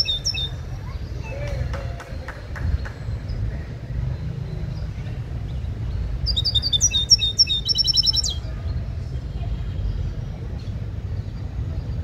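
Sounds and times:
songbird twittering and trilling: 0.0s - 1.5s, 2.6s - 9.0s.

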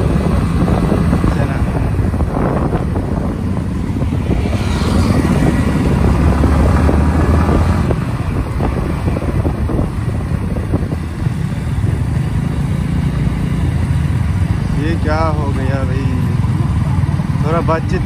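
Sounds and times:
wind on microphone: 0.0s - 12.4s
motorcycle engine: 0.0s - 18.0s.

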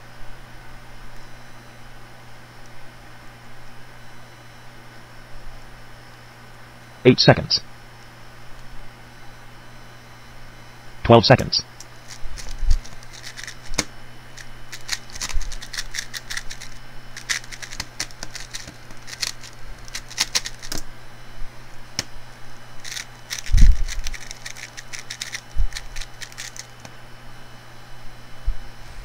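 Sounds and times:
low hum: 8.4s - 29.0s
puzzle cube clicking turns: 11.8s - 20.8s, 22.8s - 26.9s.

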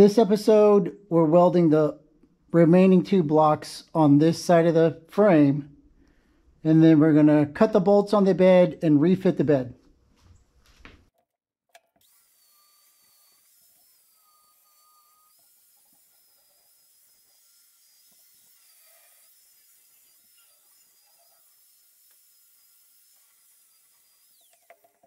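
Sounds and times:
high-pitched die grinder whine: 12.0s - 25.0s.

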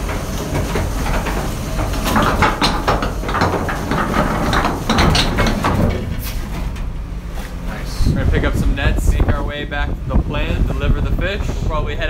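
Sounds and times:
anchor winch clanking: 0.0s - 7.6s
boat machinery rumbling: 0.0s - 12.0s.

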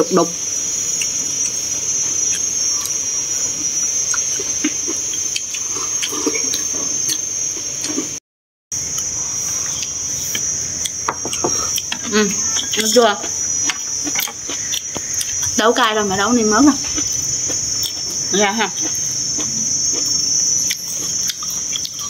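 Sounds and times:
insects droning: 0.0s - 22.0s.

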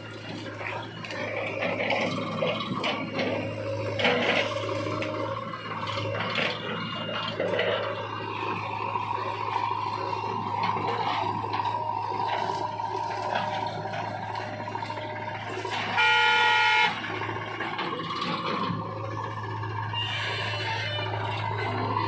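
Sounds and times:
diesel engines running: 0.0s - 22.0s
steady higher whine: 0.0s - 22.0s.

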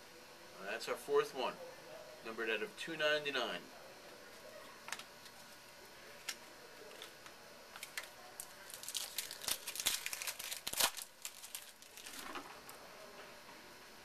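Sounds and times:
foil wrapper crinkling: 7.8s - 12.7s.

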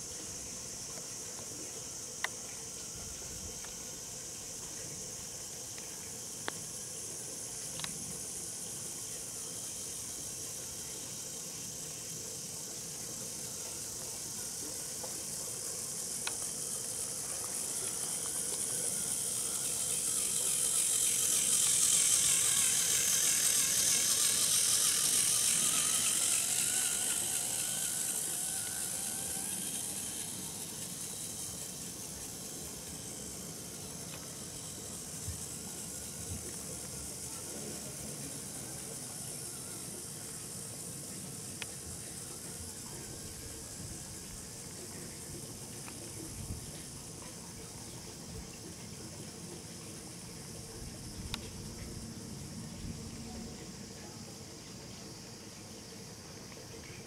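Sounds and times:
model train motor whirring: 0.0s - 57.0s
sharp ticks: 7.6s - 8.0s, 14.9s - 37.3s.

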